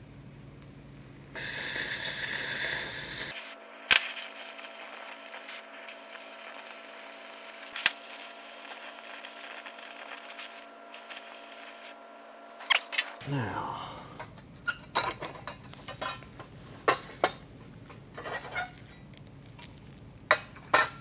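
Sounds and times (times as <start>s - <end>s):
sharp pops: 1.4s - 6.7s
cutting torch hissing: 1.4s - 13.0s.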